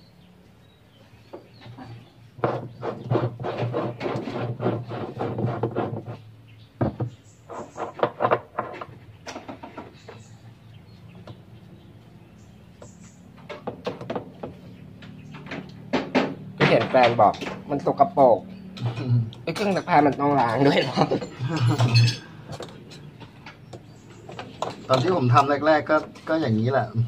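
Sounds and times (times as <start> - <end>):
tools clattering and scraping: 6.9 - 10.3, 18.6 - 26.6.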